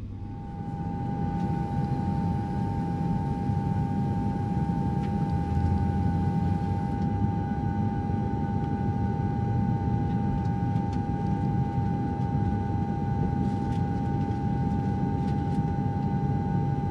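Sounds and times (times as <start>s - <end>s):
low rumble: 0.0s - 8.0s
constant mid-pitched tone: 0.0s - 16.9s.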